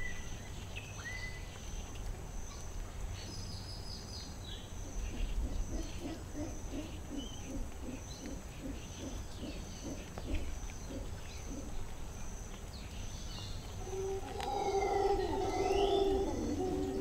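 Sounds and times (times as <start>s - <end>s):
bird calling: 4.9s - 11.9s, 13.7s - 17.0s
low pulsed animal calls: 13.8s - 17.0s.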